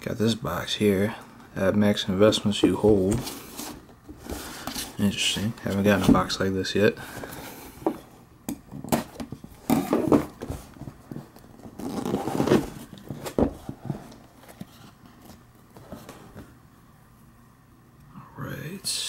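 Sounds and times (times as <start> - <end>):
cardboard scraping and rubbing: 2.6 - 6.4, 8.9 - 16.5.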